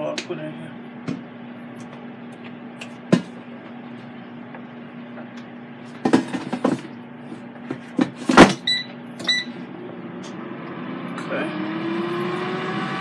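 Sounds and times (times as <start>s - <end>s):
steady low hum: 0.0s - 13.0s
short electronic beeps: 8.6s - 9.6s.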